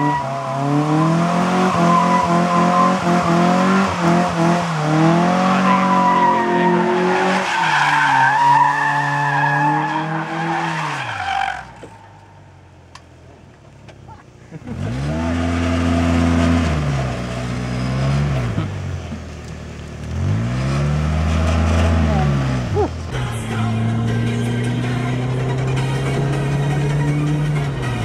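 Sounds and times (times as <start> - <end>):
car engine revving high: 0.0 - 11.8, 14.6 - 18.8, 20.0 - 28.0
tyres squealing: 5.1 - 12.3.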